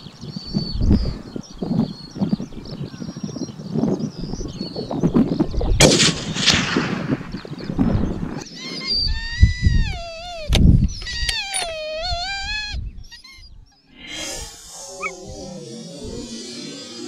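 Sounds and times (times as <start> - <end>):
wind buffeting microphone: 0.0 - 16.4
rifle shot: 5.8 - 7.9
high wavering whine: 13.9 - 17.0.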